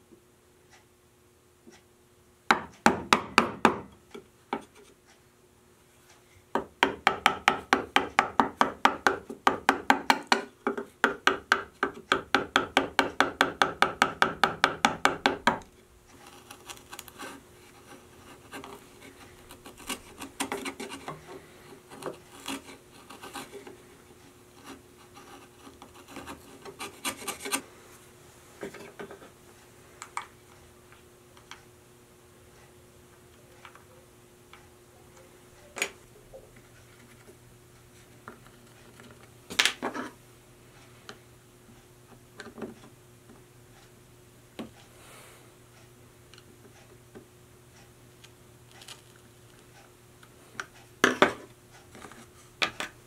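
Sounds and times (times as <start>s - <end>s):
mallet tapping chisel: 2.5s - 4.7s, 6.6s - 15.7s
chisel scraping wood: 16.1s - 27.7s.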